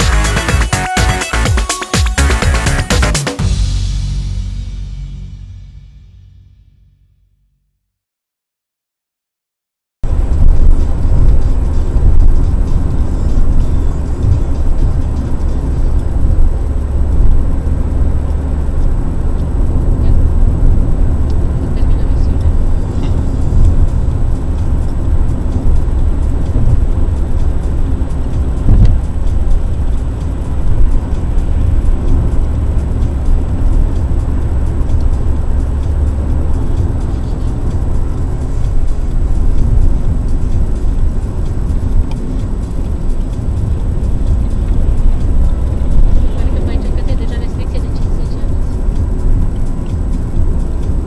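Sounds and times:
tyre and engine rumble: 0.0 - 6.5, 10.0 - 51.0
brief thump: 28.7 - 29.0.

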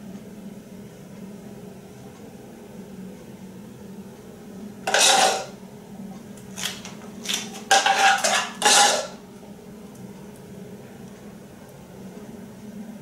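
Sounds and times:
metal spoon scraping a pot: 4.9 - 5.5, 7.7 - 9.2.

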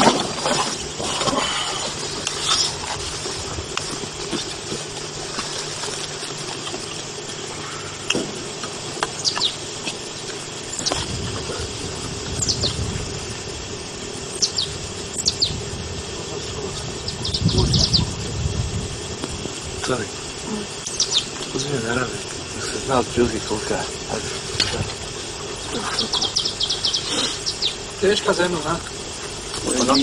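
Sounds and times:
recording hiss and hum: 0.0 - 30.0.

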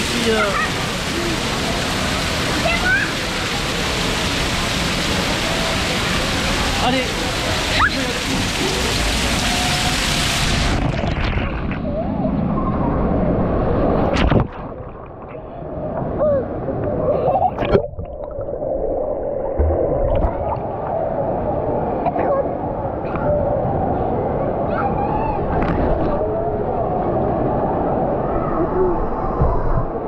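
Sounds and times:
water splashing in pool: 0.0 - 12.0, 13.8 - 15.5
water rushing down slide: 0.0 - 15.2.

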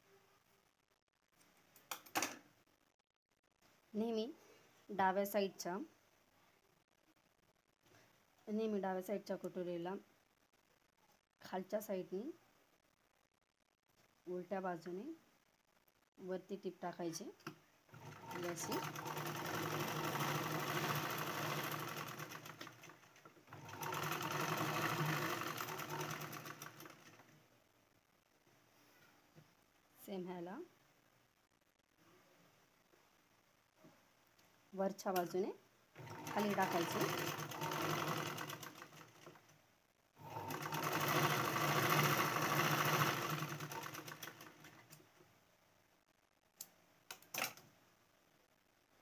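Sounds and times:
sewing machine clatter: 17.9 - 27.3, 36.0 - 39.5, 40.2 - 45.0.

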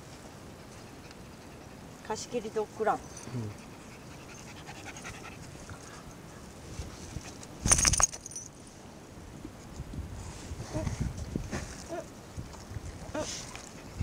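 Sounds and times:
dog panting: 0.5 - 2.0, 2.9 - 6.2
rustling and bumping on camera: 6.7 - 8.4.

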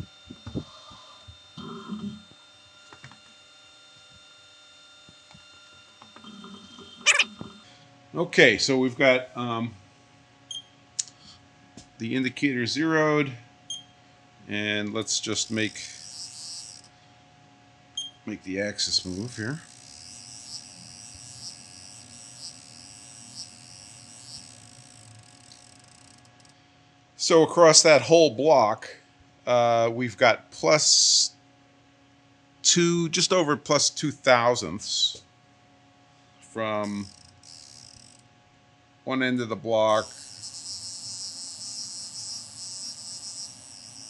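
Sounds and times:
faint electrical hum: 0.0 - 44.0
thin whining tones: 15.2 - 16.9, 18.8 - 26.5, 36.8 - 38.2, 40.0 - 44.0.

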